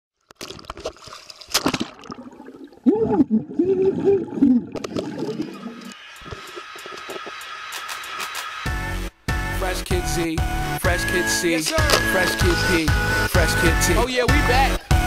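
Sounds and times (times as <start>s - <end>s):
water splash: 0.3s - 6.4s
underwater bubbling and gurgling: 0.4s - 7.2s.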